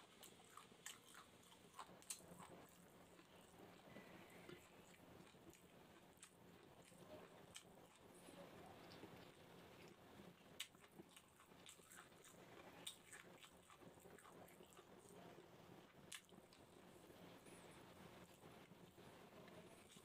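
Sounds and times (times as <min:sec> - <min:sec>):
person chewing: 0:00.0 - 0:10.0, 0:10.6 - 0:15.1.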